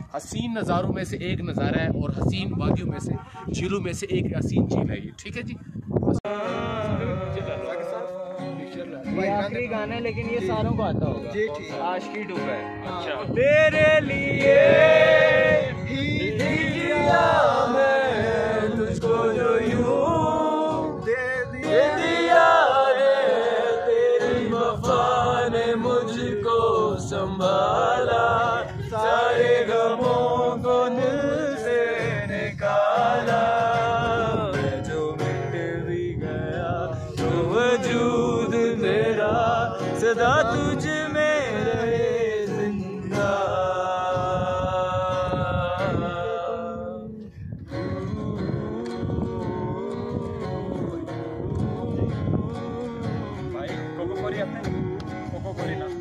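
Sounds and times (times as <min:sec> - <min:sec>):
men singing together: 0:06.2 - 0:08.8, 0:13.3 - 0:53.5
strummed acoustic guitar: 0:06.3 - 0:46.6, 0:47.6 - 0:56.0.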